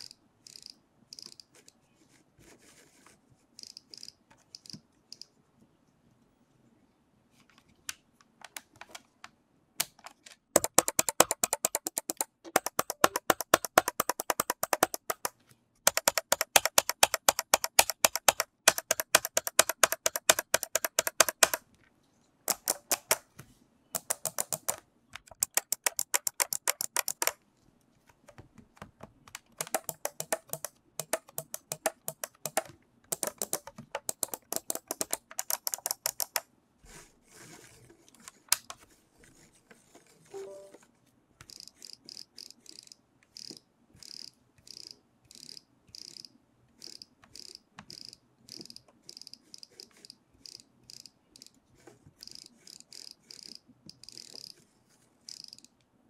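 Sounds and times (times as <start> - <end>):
trackball ticking clicks: 10.6 - 21.6, 24.0 - 27.4, 29.3 - 36.4.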